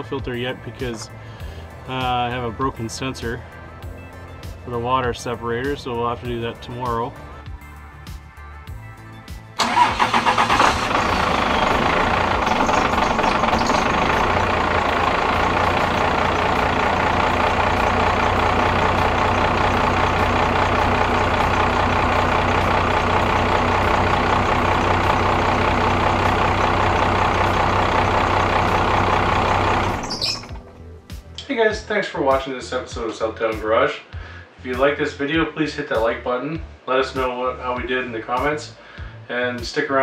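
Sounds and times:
diesel engine idling: 0:00.0 - 0:31.2.

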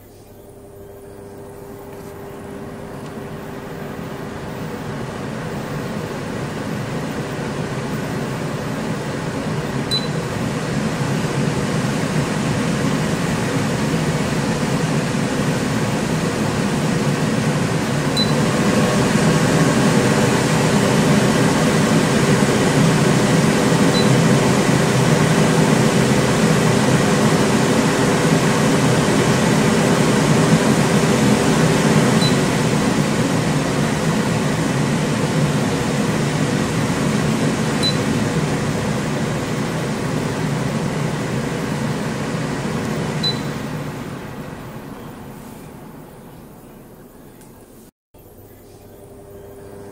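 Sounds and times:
extractor fan running: 0:00.0 - 0:49.9
short high beep: 0:09.9 - 0:10.2, 0:43.2 - 0:43.6.

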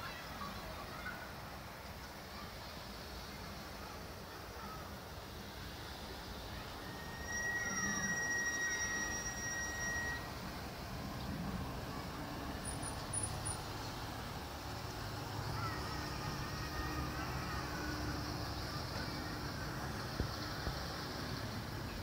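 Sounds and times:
distant city traffic rumble: 0:00.0 - 0:22.0
thin high whistle: 0:06.5 - 0:10.4.

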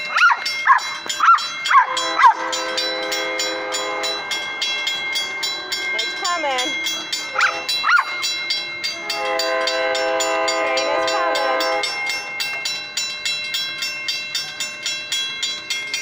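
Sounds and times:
railroad crossing bell ringing: 0:00.0 - 0:16.0
train horn: 0:01.8 - 0:04.5, 0:08.9 - 0:12.1.

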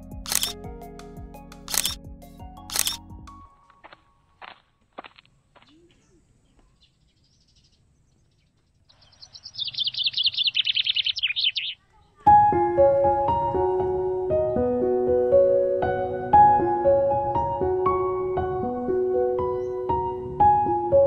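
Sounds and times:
piano music: 0:00.0 - 0:04.3, 0:12.3 - 0:21.0
bird trilling: 0:08.4 - 0:11.9.

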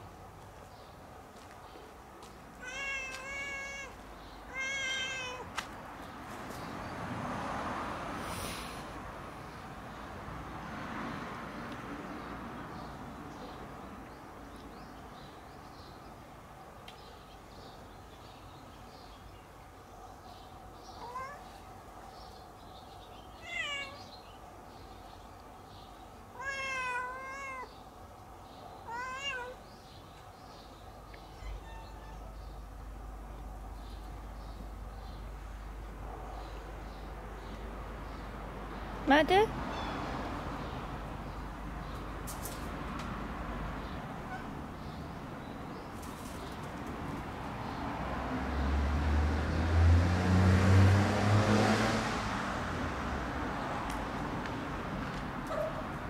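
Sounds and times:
cat meowing: 0:02.6 - 0:05.5, 0:21.0 - 0:21.5, 0:23.4 - 0:24.1, 0:26.4 - 0:27.7, 0:28.8 - 0:29.6, 0:31.3 - 0:32.4.

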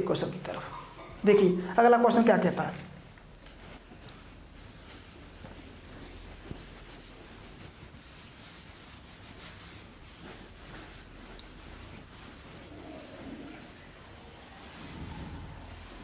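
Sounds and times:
duster rubbing on whiteboard: 0:04.6 - 0:16.0.

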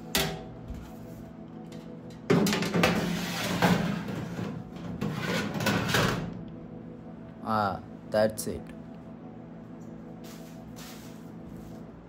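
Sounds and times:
metal tray scraping and rattling: 0:02.3 - 0:06.3.

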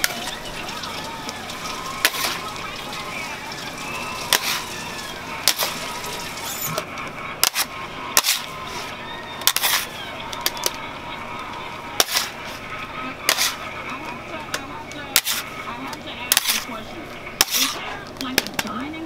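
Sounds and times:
metal scraper clacking on marble: 0:09.4 - 0:09.9, 0:12.0 - 0:12.4, 0:13.2 - 0:13.6, 0:14.5 - 0:15.4, 0:16.3 - 0:16.7, 0:17.4 - 0:17.8.

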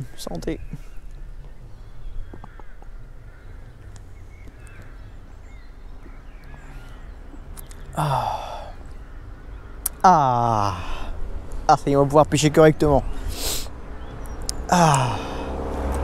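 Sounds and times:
faint bird chirps: 0:00.0 - 0:10.8
man exhaling ahh: 0:08.0 - 0:08.8, 0:13.2 - 0:13.7, 0:14.7 - 0:15.7.

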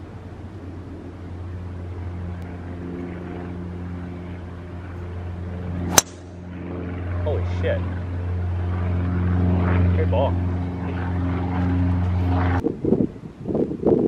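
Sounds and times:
low engine drone: 0:00.0 - 0:13.3
golf club striking ball: 0:05.9 - 0:06.4.

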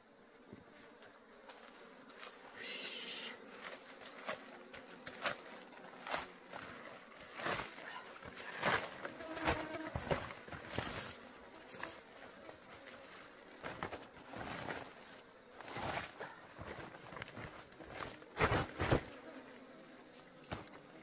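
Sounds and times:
plastic bag rustling and crinkling: 0:03.6 - 0:19.2.

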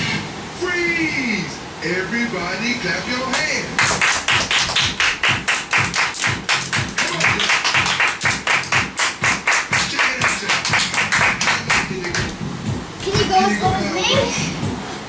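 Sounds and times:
hands clapping: 0:03.3 - 0:12.4.

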